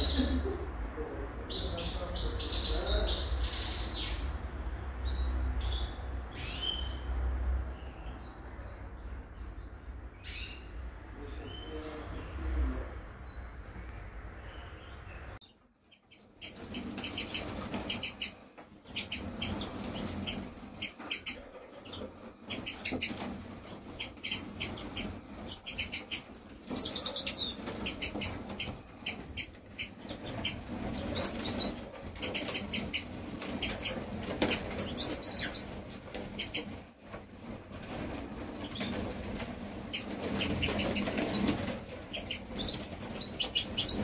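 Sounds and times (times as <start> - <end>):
canaries chirping: 0.0 - 44.0
wings fluttering: 16.1 - 44.0.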